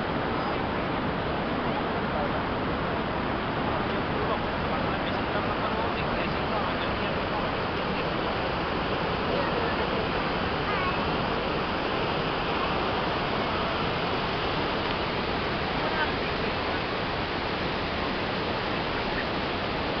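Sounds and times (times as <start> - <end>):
waterfall rushing: 0.0 - 20.0.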